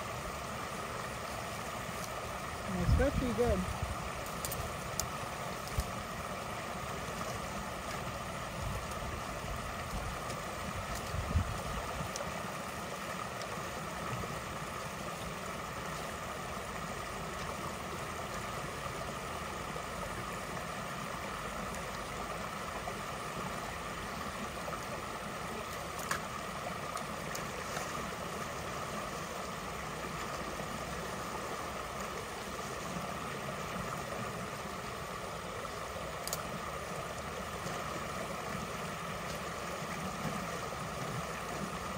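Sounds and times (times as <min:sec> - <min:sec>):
creek water running: 0:00.0 - 0:41.9
faint click: 0:36.2 - 0:36.4.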